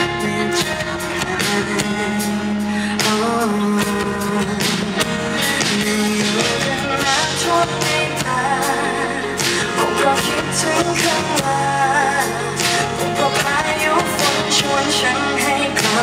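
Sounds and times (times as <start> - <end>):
woman singing: 0.0 - 16.0.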